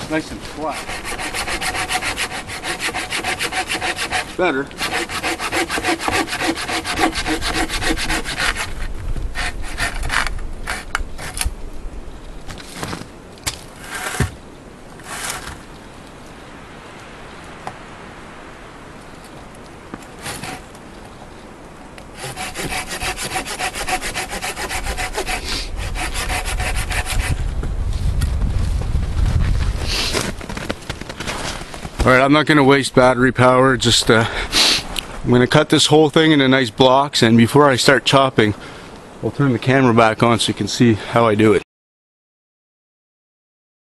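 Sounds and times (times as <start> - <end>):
hand saw cutting log: 0.0 - 11.4, 13.8 - 14.3, 15.0 - 15.6, 20.2 - 20.7, 22.2 - 27.4.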